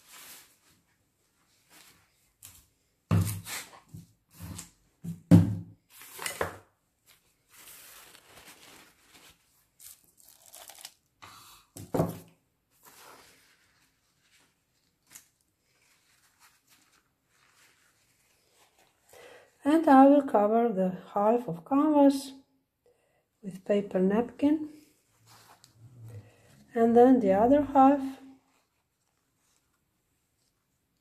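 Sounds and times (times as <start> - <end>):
paper ripping and crinkling: 7.5 - 11.0, 12.8 - 19.0.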